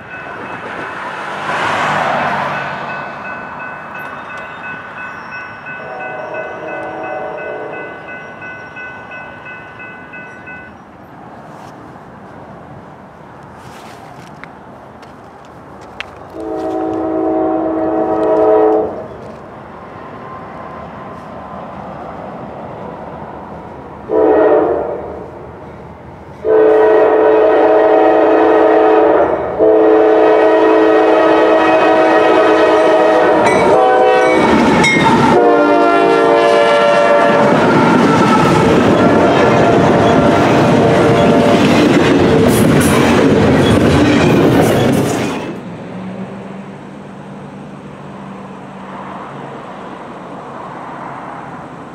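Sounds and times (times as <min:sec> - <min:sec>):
locomotive air horn blowing: 0:05.8 - 0:08.0, 0:16.3 - 0:19.0, 0:24.1 - 0:25.2, 0:26.4 - 0:34.6, 0:35.2 - 0:38.0
train wheels clacking over rail joints: 0:37.3 - 0:45.6.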